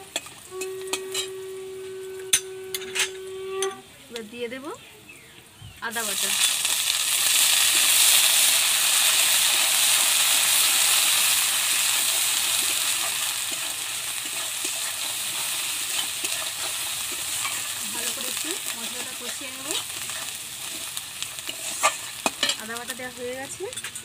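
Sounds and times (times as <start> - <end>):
spices sizzling in hot oil: 0.0 - 2.8, 5.6 - 24.0
metal spatula clinking on pan: 12.6 - 20.4, 21.4 - 22.8.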